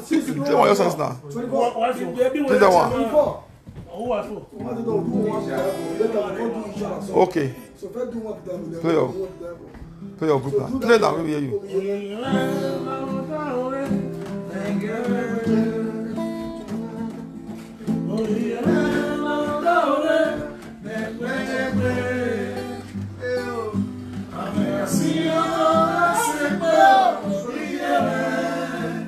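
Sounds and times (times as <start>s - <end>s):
acoustic guitar: 0.0s - 29.0s
man singing: 11.6s - 29.0s.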